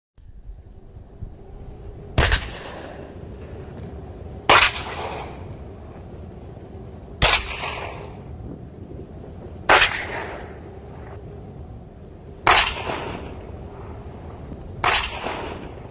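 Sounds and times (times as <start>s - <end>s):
howitzer shots with echo: 2.2s - 3.1s, 4.5s - 5.4s, 7.2s - 8.2s, 9.7s - 10.6s, 12.4s - 13.5s, 14.8s - 15.9s.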